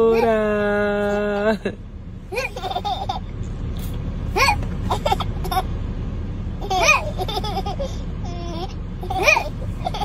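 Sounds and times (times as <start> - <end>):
car interior rumble: 0.0 - 10.0
baby laughing: 2.3 - 3.3, 4.3 - 5.7, 6.6 - 10.0.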